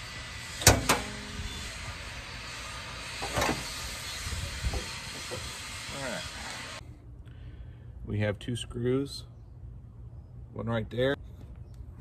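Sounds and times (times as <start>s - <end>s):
car hood clunk: 0.6s - 1.2s.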